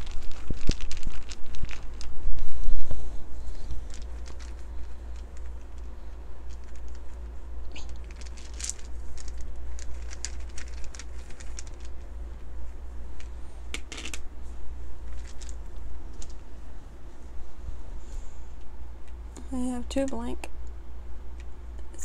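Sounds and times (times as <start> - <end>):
wooden dice rattling in bag: 0.0 - 2.4, 3.7 - 12.0, 15.0 - 16.4
low steady hum: 0.0 - 22.0
dice clattering on table: 13.7 - 14.2.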